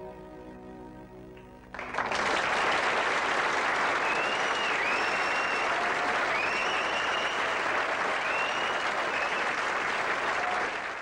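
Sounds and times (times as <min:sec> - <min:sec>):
audience applauding: 0:01.7 - 0:11.0
whistles: 0:04.0 - 0:09.8.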